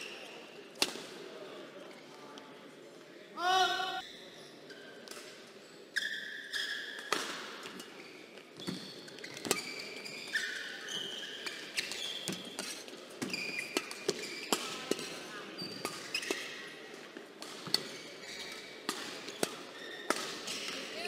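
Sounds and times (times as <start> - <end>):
shoes squeaking on court floor: 5.6 - 16.7, 17.6 - 21.0
rackets hitting shuttlecock: 7.0 - 7.9, 11.4 - 16.6, 17.4 - 21.0.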